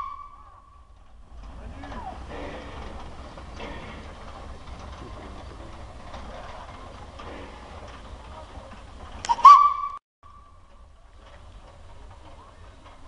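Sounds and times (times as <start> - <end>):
locomotive whistle blast: 0.0 - 0.8, 9.2 - 10.5
steam locomotive rumbling: 0.0 - 13.0.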